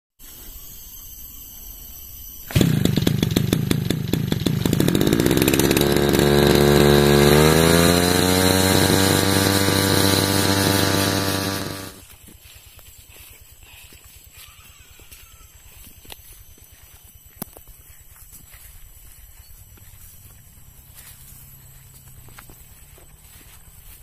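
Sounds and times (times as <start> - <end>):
brush cutter engine idling: 2.5 - 12.0.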